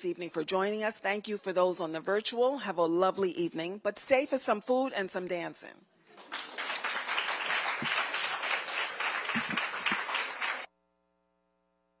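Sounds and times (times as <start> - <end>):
audience applauding: 6.1 - 10.7.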